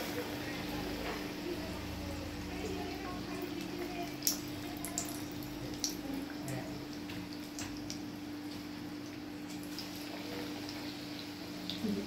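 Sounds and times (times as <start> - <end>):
food deep-frying in oil: 0.0 - 12.0
steady low hum: 0.0 - 12.0.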